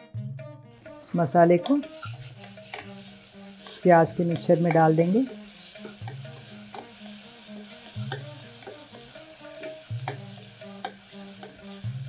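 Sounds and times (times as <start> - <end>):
spatula scraping pot: 0.8 - 11.9
onions sizzling in oil: 0.8 - 12.0
spatula clicking against pot: 5.8 - 7.0, 8.0 - 9.0, 9.6 - 11.6.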